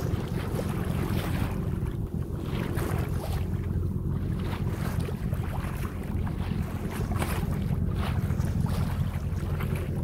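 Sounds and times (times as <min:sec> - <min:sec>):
water washing along boat hull: 0:00.0 - 0:10.0
wind buffeting microphone: 0:00.0 - 0:10.0.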